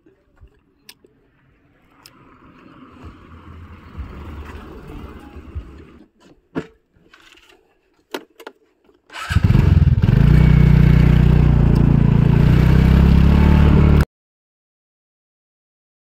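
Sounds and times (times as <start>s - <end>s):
motorcycle engine running: 9.2s - 14.0s.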